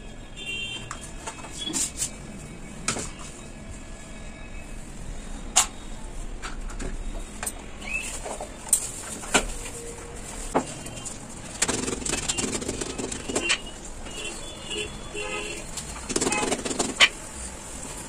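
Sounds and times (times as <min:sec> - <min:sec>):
utensils clicking and tapping: 0:15.7 - 0:17.3.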